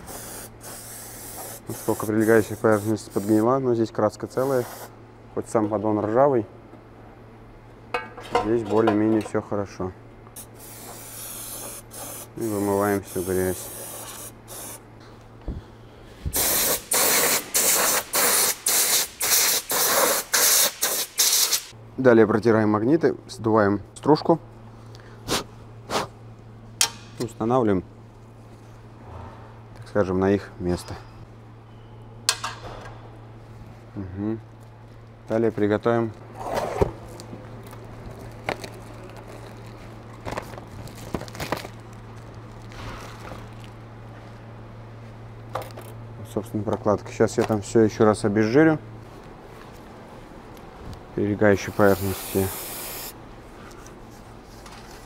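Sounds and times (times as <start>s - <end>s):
cleaning fluid spray hissing: 0.0s - 3.4s, 16.4s - 21.7s, 51.7s - 53.2s
steady low hum: 0.0s - 55.0s
tools knocking and clicking: 7.9s - 9.4s, 32.3s - 32.8s.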